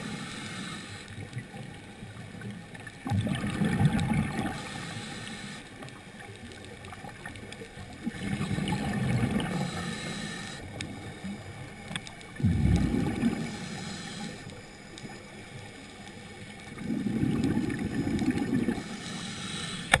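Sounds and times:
quiet hiss: 0:00.0 - 0:20.0
diver's exhaled bubbles rumbling: 0:03.0 - 0:04.6, 0:07.8 - 0:09.7, 0:12.3 - 0:13.6, 0:16.7 - 0:18.8
faint clicks: 0:03.9 - 0:08.4, 0:09.3 - 0:16.8, 0:18.1 - 0:20.0.

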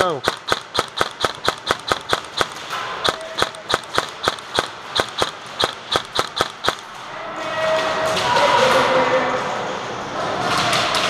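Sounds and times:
airsoft rifle shots: 0:00.0 - 0:07.0.

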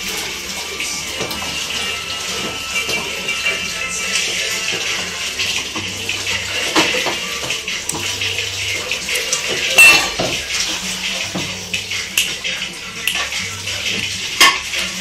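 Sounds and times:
metal objects clinking and clattering: 0:09.2 - 0:10.8.

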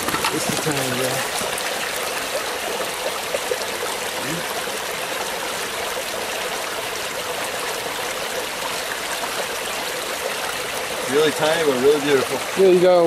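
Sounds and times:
brook flowing over stones: 0:00.0 - 0:13.0.

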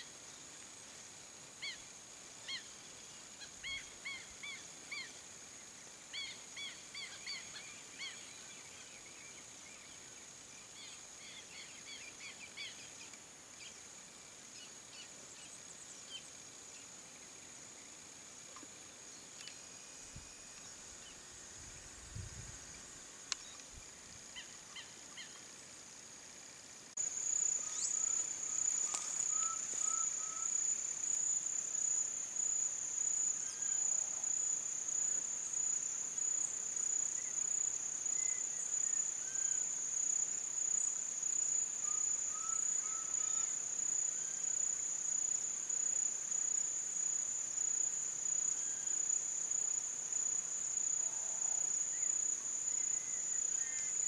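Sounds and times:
high-pitched insect drone: 0:26.6 - 0:49.8.

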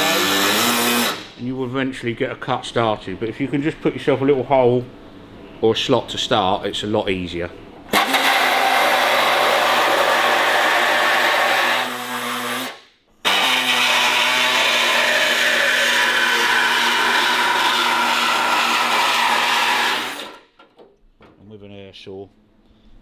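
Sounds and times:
air saw cutting steel: 0:00.0 - 0:01.4, 0:07.9 - 0:20.5.

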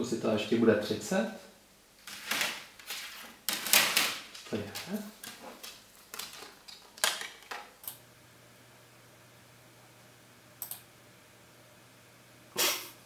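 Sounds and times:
faint steady hum: 0:00.0 - 0:13.0
plastic disc case clicking: 0:04.8 - 0:07.7.

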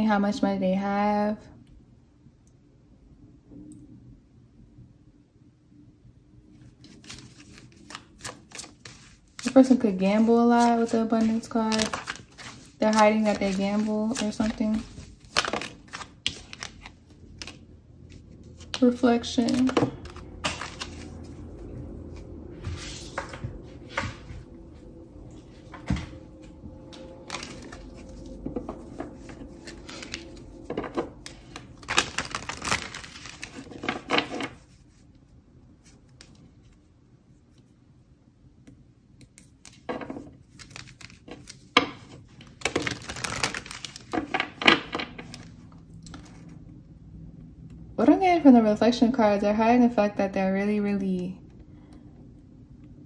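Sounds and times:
cards being shuffled: 0:06.8 - 0:21.4, 0:27.2 - 0:34.8.

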